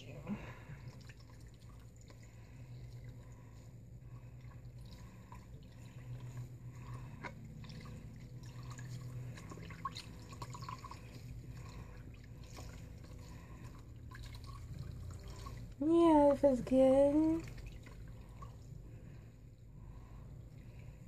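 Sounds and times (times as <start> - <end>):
water dripping and trickling: 0.0 - 19.3
low steady hum: 0.0 - 21.0
small water splashes: 0.7 - 15.8, 17.2 - 18.7.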